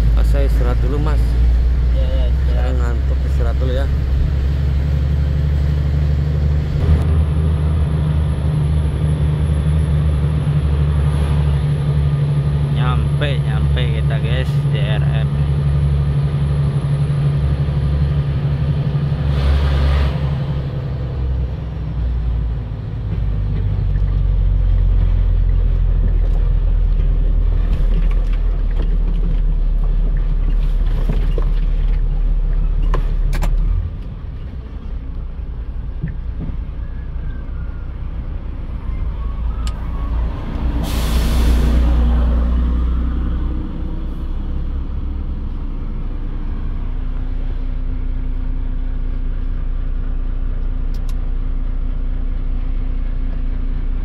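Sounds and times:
truck diesel engine rumbling: 0.0s - 54.0s
air brake hiss: 40.8s - 41.8s.

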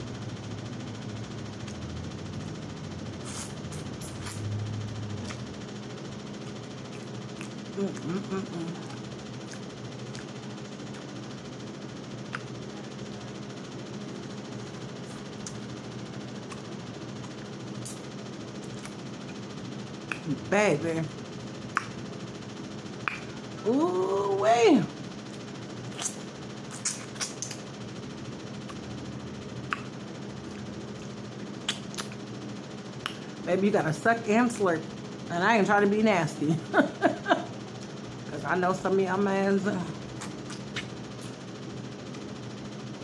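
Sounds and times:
room noise hum and hiss: 0.0s - 43.0s
sucking meat off bone: 3.1s - 5.6s, 6.4s - 11.2s, 25.3s - 27.7s, 39.8s - 41.4s
mouth smacks while eating: 3.2s - 4.5s, 6.4s - 11.2s, 12.3s - 12.6s, 20.0s - 20.4s, 21.7s - 22.0s, 23.0s - 23.4s, 25.3s - 27.7s, 29.6s - 29.9s, 30.5s - 32.3s, 33.0s - 33.3s, 40.1s - 41.4s
fingers being licked: 6.4s - 11.1s, 20.0s - 20.4s, 21.7s - 22.0s, 23.0s - 23.4s, 25.3s - 27.7s, 29.7s - 29.9s, 30.5s - 32.3s, 33.0s - 33.3s, 40.1s - 41.4s.

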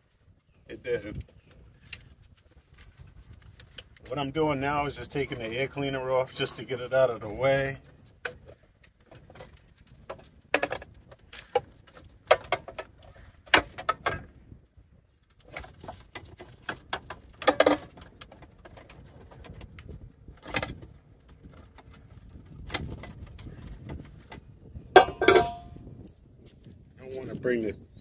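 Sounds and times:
wind rumbling on microphone: 0.0s - 28.0s
metal parts clinking and knocking: 25.0s - 25.8s.

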